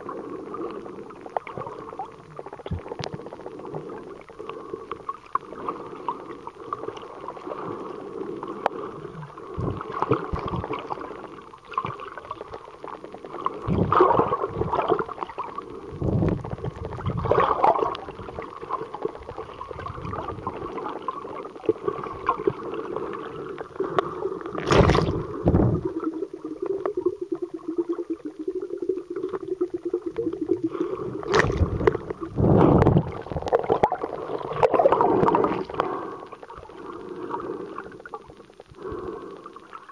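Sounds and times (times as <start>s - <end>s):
underwater gurgling: 0.0s - 39.9s
water whooshes: 24.6s - 25.9s.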